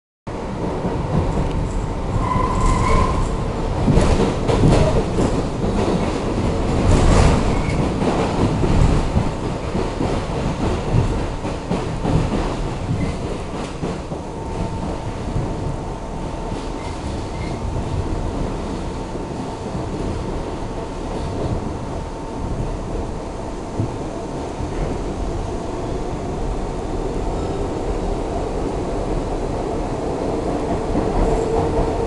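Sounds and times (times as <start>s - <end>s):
subway wheels rumbling on track: 0.3s - 32.0s.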